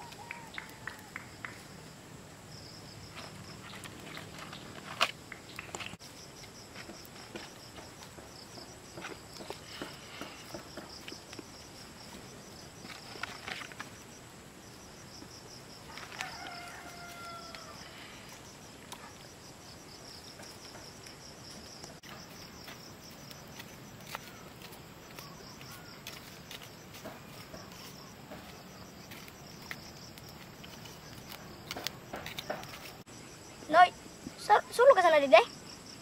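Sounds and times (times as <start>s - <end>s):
rooster crowing: 0.0s - 1.6s, 15.8s - 18.1s
insects chirping: 0.0s - 36.0s.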